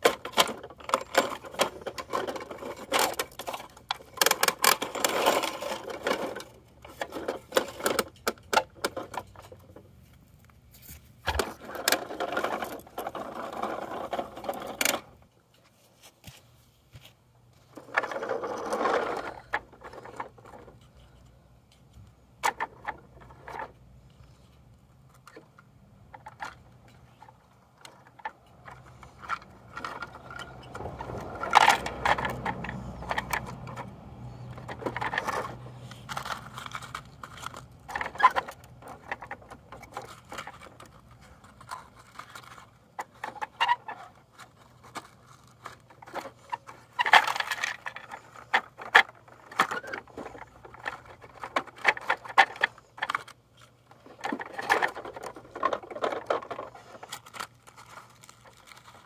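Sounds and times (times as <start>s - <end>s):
plastic toy parts clicking: 0.0s - 9.6s, 25.1s - 59.0s
rattling mechanical noise: 0.0s - 10.0s, 11.2s - 15.4s, 17.6s - 59.0s.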